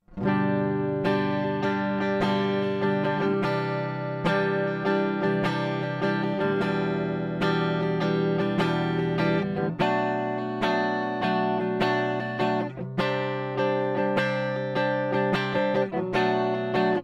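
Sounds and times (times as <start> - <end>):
electric guitar strumming chords: 0.0 - 17.0.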